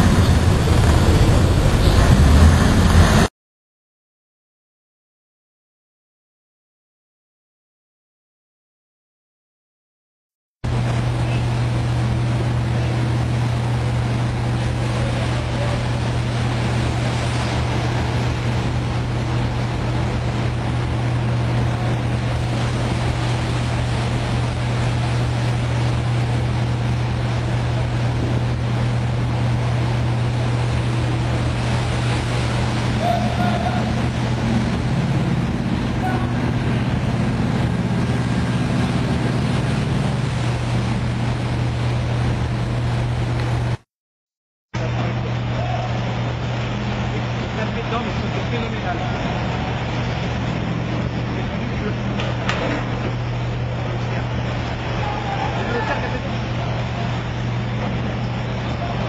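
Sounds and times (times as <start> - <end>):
low engine drone: 0.0 - 3.3, 10.6 - 43.8, 44.8 - 59.0
water churning and splashing: 0.0 - 3.3, 10.6 - 43.8, 44.8 - 59.0.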